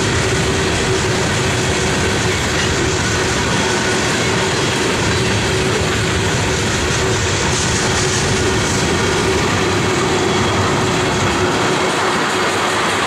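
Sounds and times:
train wheels on rails: 0.0s - 13.0s.

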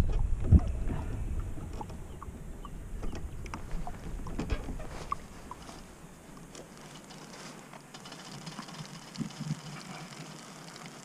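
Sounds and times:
low rumble: 0.0s - 6.6s.

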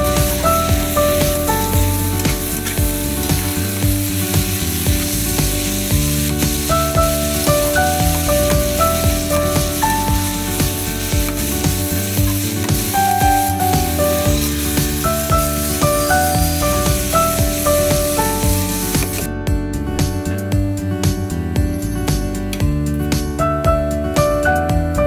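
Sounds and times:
spatula scraping wok: 0.0s - 19.3s
vegetables sizzling in a wok: 0.0s - 19.3s
background music with melody: 0.0s - 25.0s.

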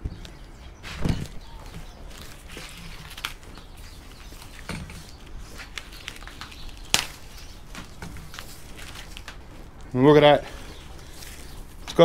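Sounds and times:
cable insulation rustling: 0.8s - 12.0s.

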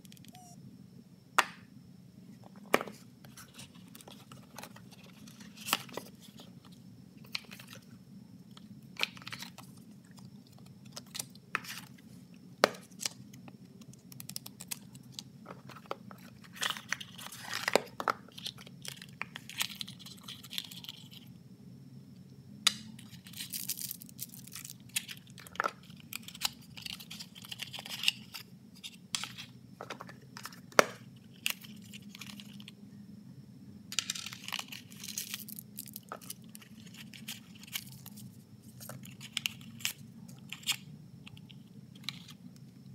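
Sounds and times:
faint low hum: 0.0s - 42.9s.

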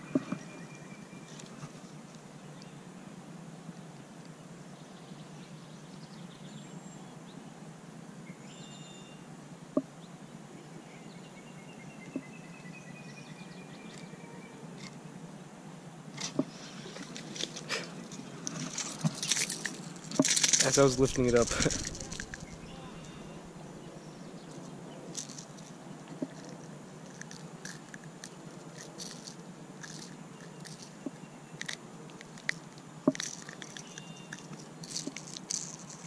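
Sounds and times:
outdoor background noise: 0.0s - 36.0s
birds chirping and trilling: 20.6s - 25.2s.

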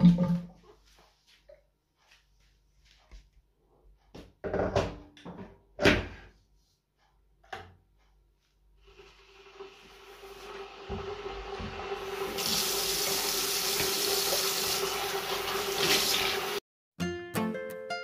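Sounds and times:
tap running into metal sink: 10.8s - 16.3s.

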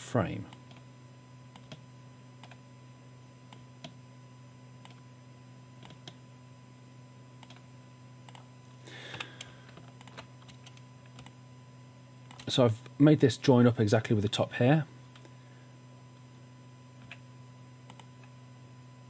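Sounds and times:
steady low hum: 0.0s - 19.0s
computer keyboard and mouse clicks: 7.4s - 7.6s, 9.1s - 11.4s.

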